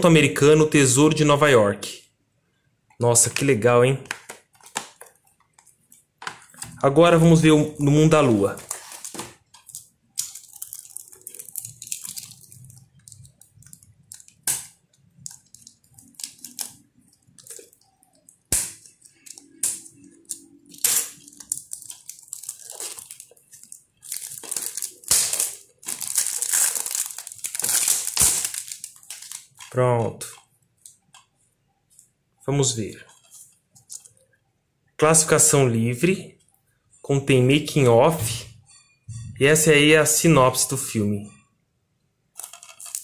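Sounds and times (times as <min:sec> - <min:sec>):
plastic film crinkling: 0:08.0 - 0:31.3, 0:42.3 - 0:43.0
plastic film being slit: 0:20.7 - 0:23.3, 0:24.1 - 0:29.6.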